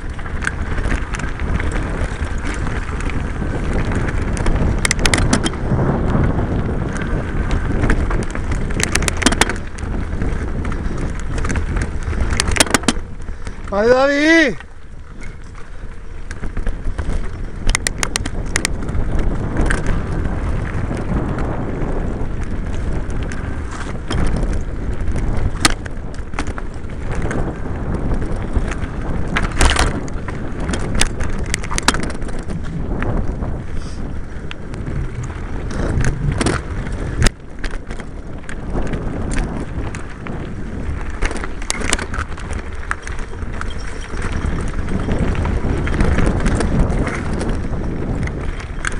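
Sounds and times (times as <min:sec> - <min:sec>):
bike knocking and rattling: 0:00.0 - 0:48.9
tyres rumbling on dirt trail: 0:00.0 - 0:48.9.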